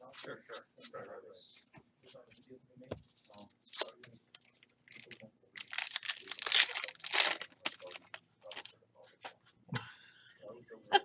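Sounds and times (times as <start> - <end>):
wrapper tearing and crinkling: 4.9 - 8.7.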